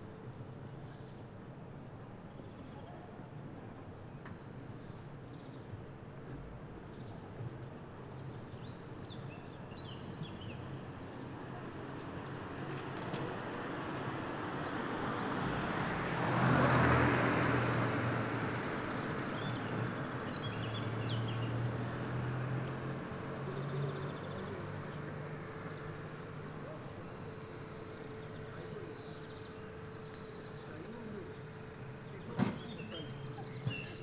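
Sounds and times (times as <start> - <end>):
car passing: 12.4 - 34.0.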